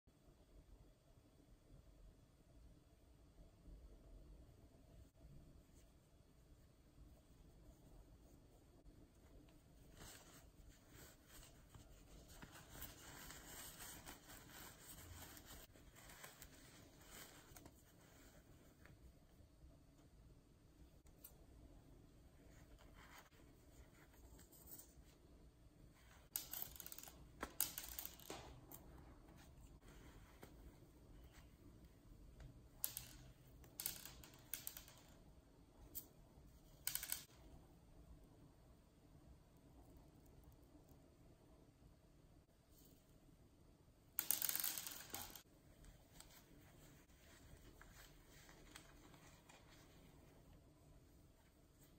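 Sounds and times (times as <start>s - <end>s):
toy stuffing crackling and rustling: 9.4s - 19.0s, 44.7s - 51.9s.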